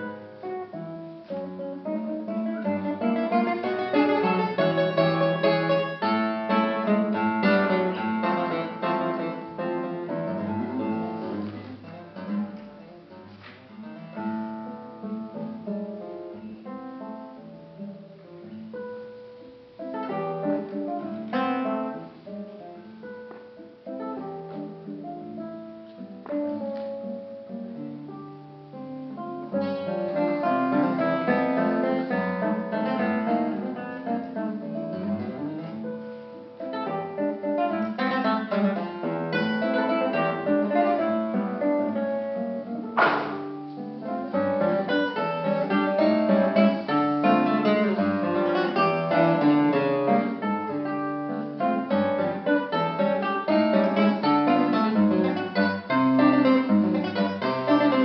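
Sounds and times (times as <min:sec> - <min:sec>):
classical guitar playing: 0:00.0 - 0:58.0
sharp click: 0:43.0 - 0:43.4.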